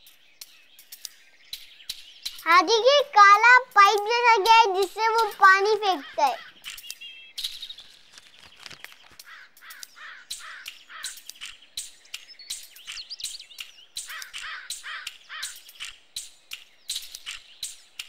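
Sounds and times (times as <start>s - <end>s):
sharp clicks: 0.0s - 17.8s
crow cawing: 9.2s - 11.2s, 14.1s - 15.6s.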